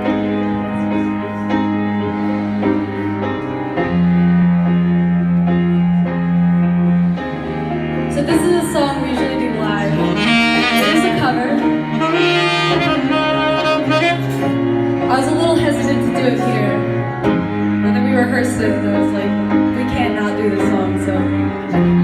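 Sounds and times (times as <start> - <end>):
cello notes: 0.0 - 22.0
piano: 0.0 - 22.0
saxophone line: 9.9 - 17.9.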